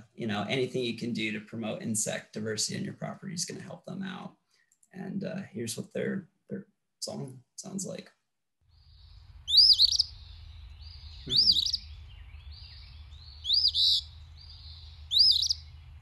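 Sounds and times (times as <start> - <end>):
bird singing high phrases: 8.8 - 16.0
low background rumble: 9.0 - 16.0.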